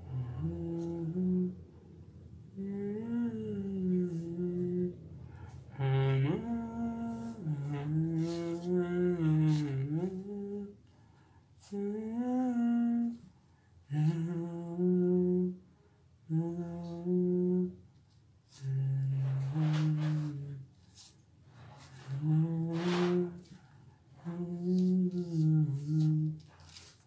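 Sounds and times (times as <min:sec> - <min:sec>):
man humming a tune: 0:00.0 - 0:01.6, 0:02.5 - 0:05.1, 0:05.7 - 0:10.8, 0:11.6 - 0:13.2, 0:13.9 - 0:15.6, 0:16.3 - 0:17.8, 0:18.5 - 0:20.7, 0:21.9 - 0:23.6, 0:24.2 - 0:26.4.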